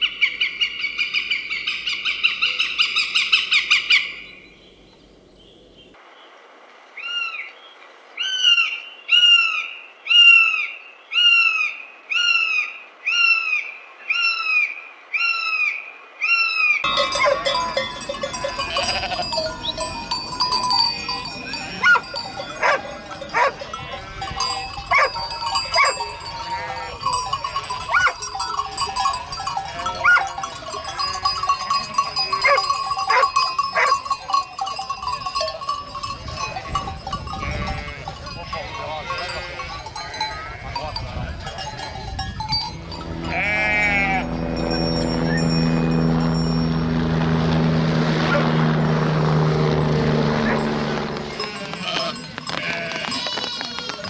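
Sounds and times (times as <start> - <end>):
sheep bleating: 16.9 - 27.2, 27.9 - 31.0, 37.4 - 40.8, 42.9 - 44.9, 51.2 - 54.0
sheep bells clanking: 16.9 - 47.5, 48.8 - 54.0.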